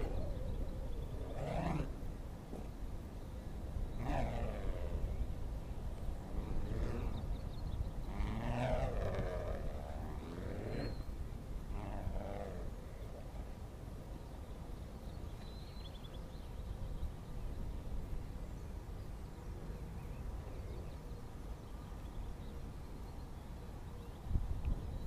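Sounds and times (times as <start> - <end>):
wind buffeting microphone: 0.0 - 13.8, 24.1 - 25.0.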